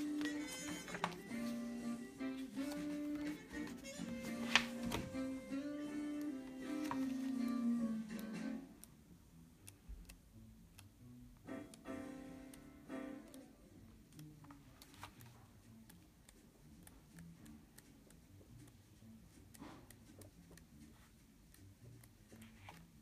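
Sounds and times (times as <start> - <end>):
book pages turning: 0.0 - 5.5, 6.1 - 8.3, 14.4 - 16.6, 22.2 - 23.0.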